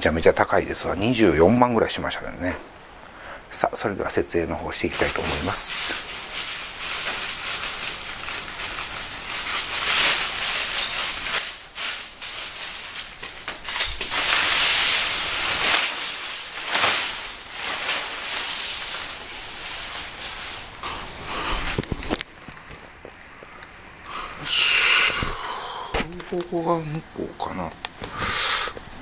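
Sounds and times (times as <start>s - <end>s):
nylon tent fabric rustling: 4.7s - 22.2s.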